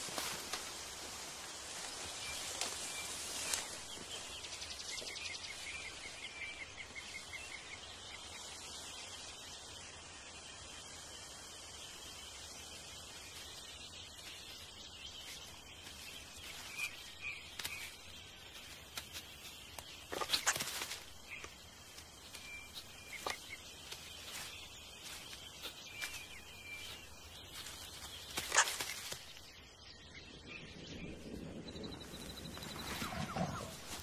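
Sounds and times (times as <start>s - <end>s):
sharp crackling bursts: 15.3s - 29.4s.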